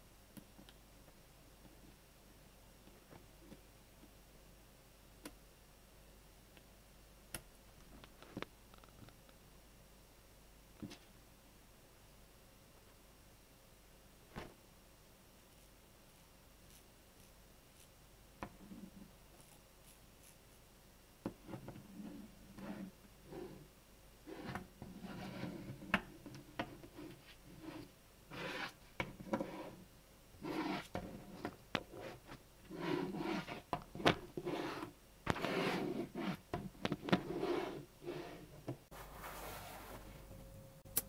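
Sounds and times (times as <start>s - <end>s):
balls rubbing and scraping: 21.3s - 23.7s, 24.3s - 40.1s.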